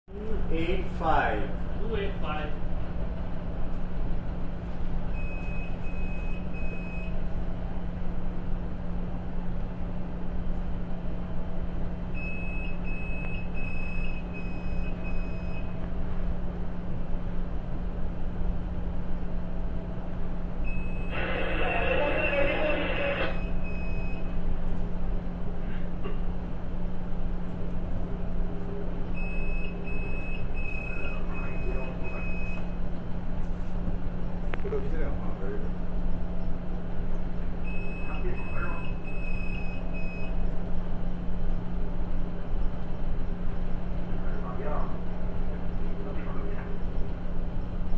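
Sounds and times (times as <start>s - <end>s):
steady low hum: 0.1s - 47.9s
short high-pitched beeps: 20.7s - 24.3s, 29.2s - 32.8s, 37.7s - 40.3s
distant helicopter drone: 20.9s - 23.6s.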